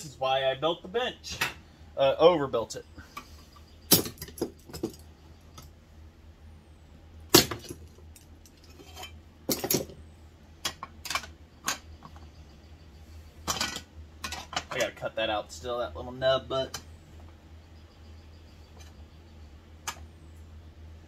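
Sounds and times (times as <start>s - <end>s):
metallic clinks and knocks: 13.4s - 14.9s.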